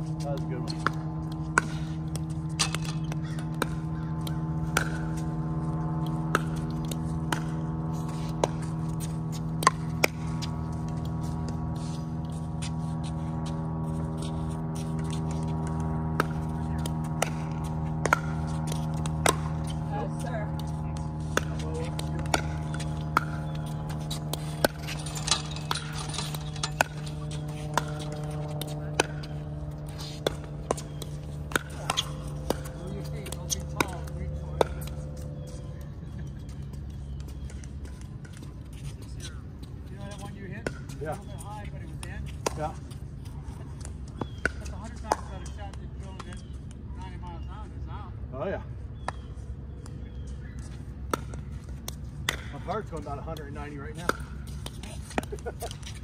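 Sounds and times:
steady low hum: 0.0 - 56.0
ball bouncing on hard court: 0.1 - 13.6, 14.2 - 35.8.

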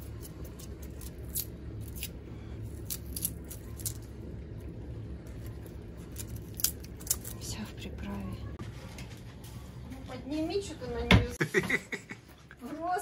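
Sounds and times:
steady low hum: 0.0 - 12.8.

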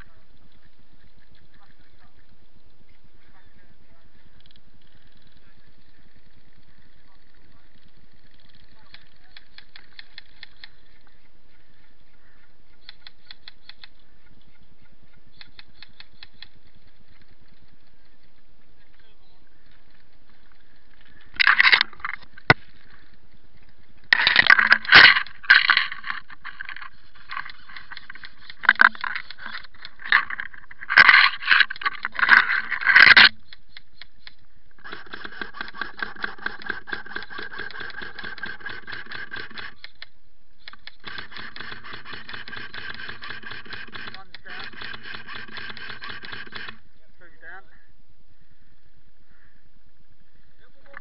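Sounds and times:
airsoft rifle rapid burst: 34.8 - 40.0, 40.8 - 46.8.

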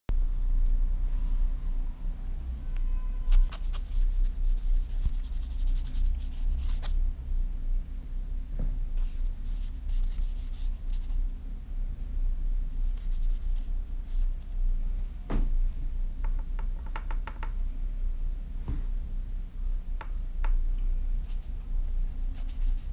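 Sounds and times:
steady low hum: 0.1 - 22.9
wet brush scratching across paper: 3.3 - 7.0, 9.0 - 11.2, 13.0 - 14.5, 22.3 - 22.9.

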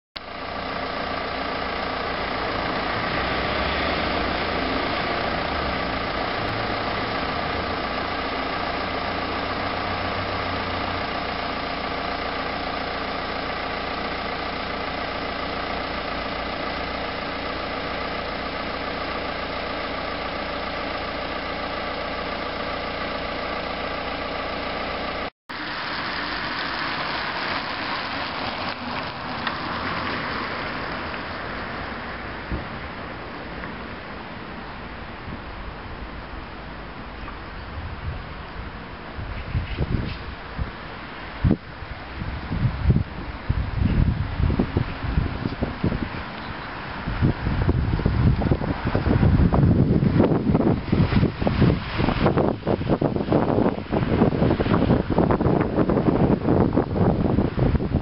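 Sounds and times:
engine idling: 0.2 - 58.0
street noise: 0.2 - 58.0
car driving by: 1.3 - 11.2, 25.5 - 37.3.

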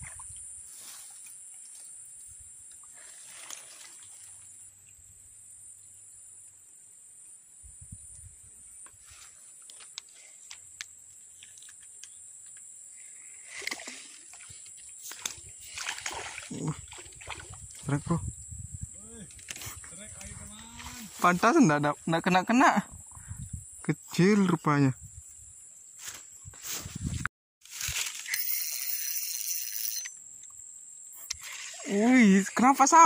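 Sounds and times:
fishing rod handling rustle: 8.8 - 12.7, 13.5 - 16.3, 19.3 - 21.1, 26.0 - 30.2.

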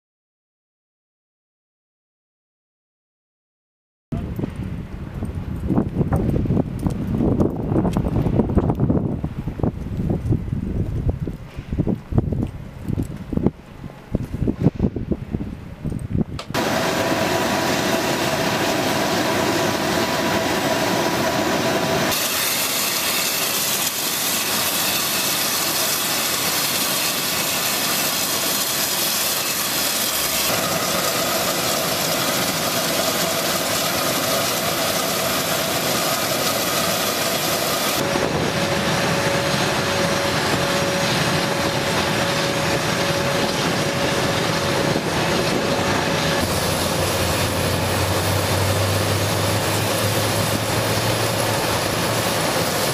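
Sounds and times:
faint turbine whine: 4.2 - 52.9
jet turbine rushing hiss: 16.5 - 52.9.

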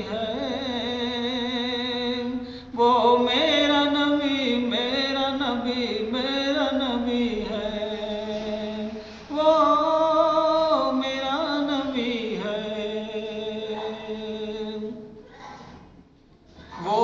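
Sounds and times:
person singing devotional song: 0.0 - 15.2, 16.6 - 17.0.

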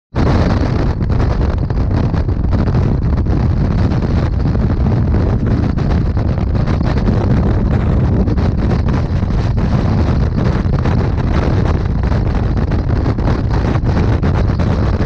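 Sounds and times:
wind buffeting microphone: 0.1 - 15.0.

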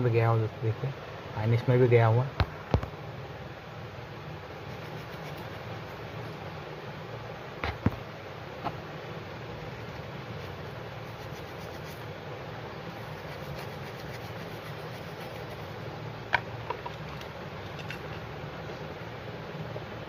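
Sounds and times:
constant low hum: 0.0 - 20.0
plastic brush scrubbing: 10.4 - 12.0, 13.0 - 15.7.

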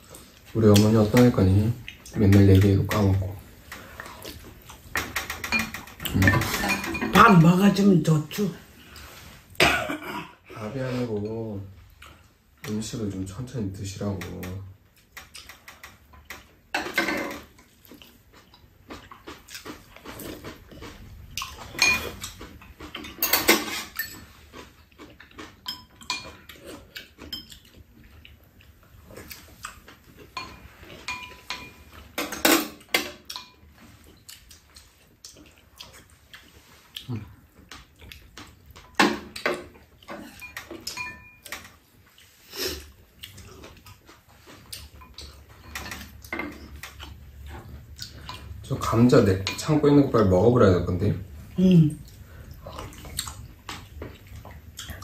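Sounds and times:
utensils clinking on ceramic bowls: 5.0 - 7.7, 21.5 - 24.3, 25.6 - 26.5, 30.4 - 33.7, 38.8 - 41.8, 48.8 - 50.2
chewing: 17.3 - 23.2, 23.9 - 32.2, 33.2 - 48.7, 51.4 - 55.0.

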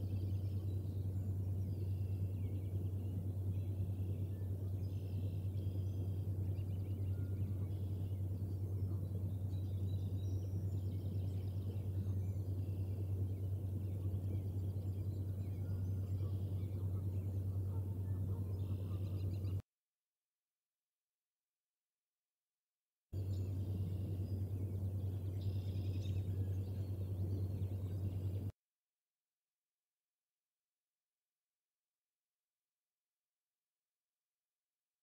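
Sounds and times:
distant birds trilling: 0.0 - 19.6, 23.2 - 28.5
steady low hum: 0.0 - 19.6, 23.2 - 28.6.

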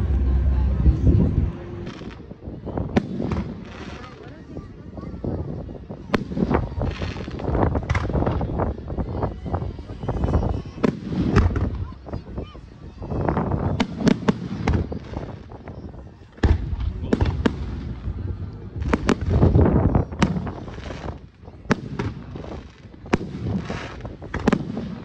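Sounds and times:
firework booms: 0.0 - 4.3, 6.0 - 8.6, 10.8 - 11.9, 13.4 - 15.5, 16.4 - 25.0
firework pops and crackles: 2.9 - 4.5, 6.0 - 8.8, 10.8 - 11.9, 13.4 - 15.7, 16.4 - 25.0.

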